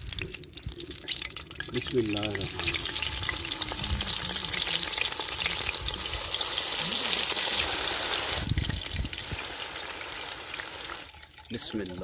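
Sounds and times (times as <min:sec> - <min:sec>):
oil sizzling and bubbling: 0:00.0 - 0:12.0.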